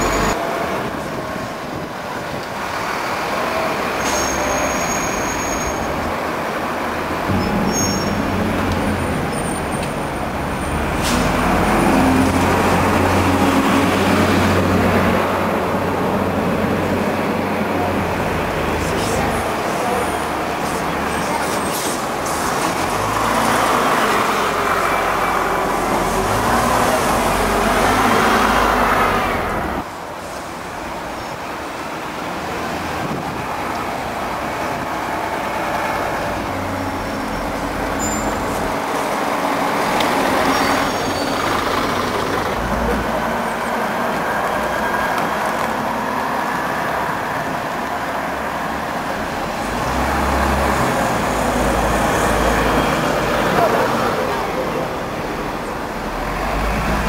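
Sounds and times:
bus diesel engines pulling away: 0:00.0 - 0:57.0
town traffic noise: 0:00.0 - 0:57.0.

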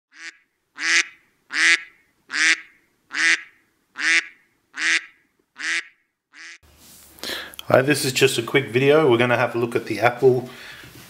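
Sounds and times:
duck-like quacking call: 0:00.1 - 0:06.6.

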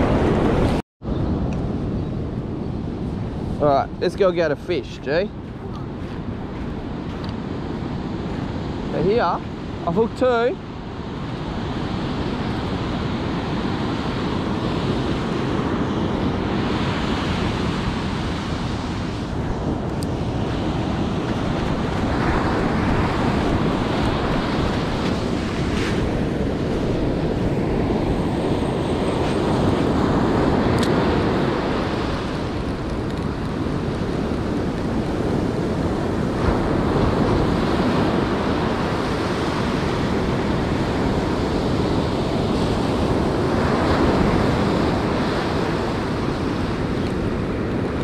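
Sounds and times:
wind buffeting microphone: 0:00.0 - 0:48.0
surf breaking on beach: 0:11.3 - 0:48.0.

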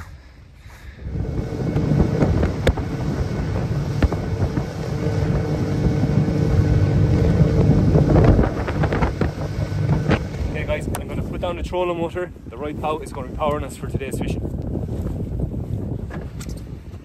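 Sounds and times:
wind buffeting microphone: 0:00.0 - 0:17.0
boat engine droning: 0:00.8 - 0:13.4
hull knocking against waves: 0:01.7 - 0:11.3.

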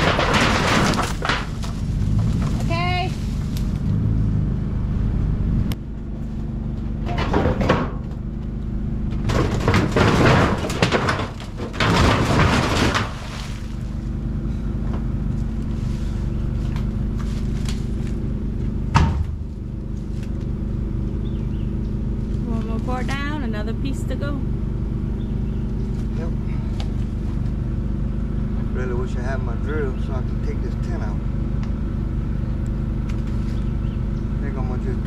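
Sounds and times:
debris scraping and crashing: 0:00.0 - 0:03.9, 0:09.2 - 0:14.2
low engine hum: 0:00.0 - 0:35.0.

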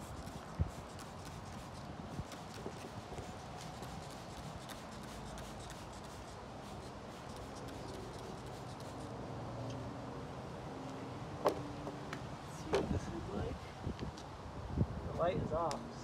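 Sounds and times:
spray bottle spritzing: 0:00.0 - 0:09.0.

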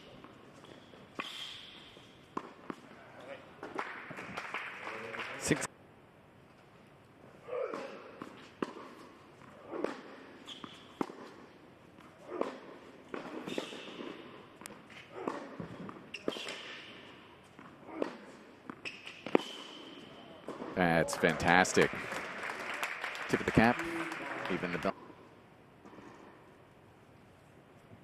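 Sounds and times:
rackets striking tennis ball: 0:00.1 - 0:03.0, 0:07.6 - 0:22.0
tennis ball bouncing: 0:02.3 - 0:02.9, 0:07.7 - 0:16.7.

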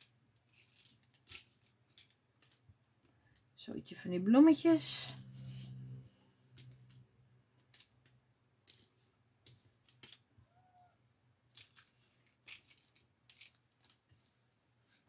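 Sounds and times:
low steady hum: 0:03.2 - 0:08.5.

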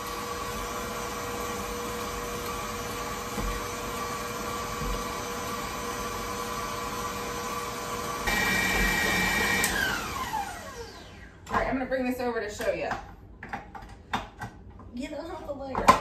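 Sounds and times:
stand mixer motor whine: 0:00.0 - 0:11.4.

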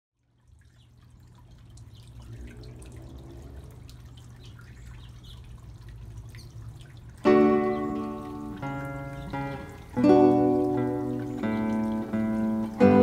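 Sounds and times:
fountain trickling and dripping: 0:00.2 - 0:13.0
low steady rumble: 0:00.3 - 0:07.2.

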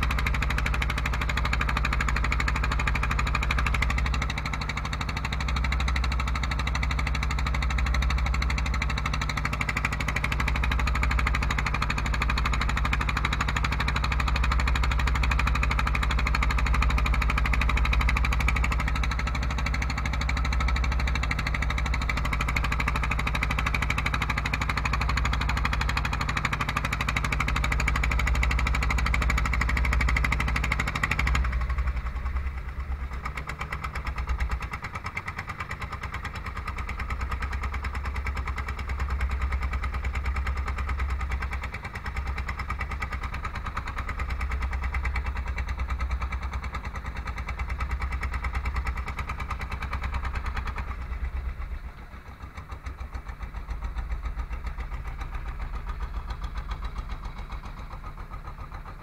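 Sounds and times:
boat engine humming: 0:00.0 - 0:59.0.

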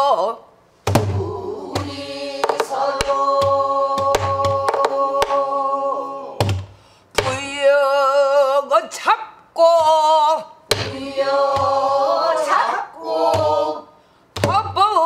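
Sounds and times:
person singing with vibrato: 0:01.1 - 0:06.5.

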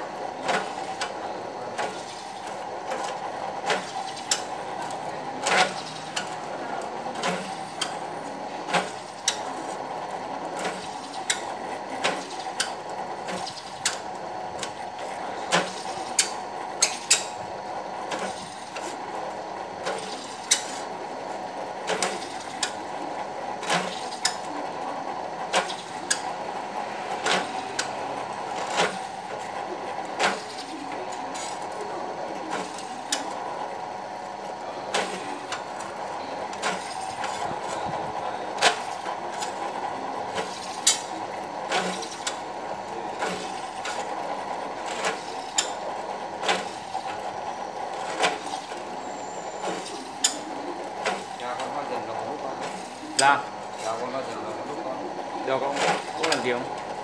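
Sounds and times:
drill press running: 0:00.0 - 0:57.0.

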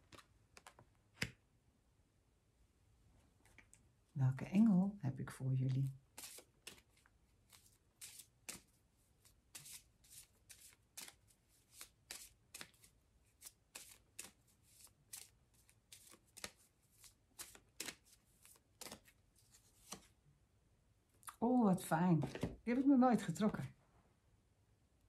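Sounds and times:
cards being shuffled: 0:00.0 - 0:01.4, 0:05.7 - 0:20.2, 0:22.2 - 0:22.9.

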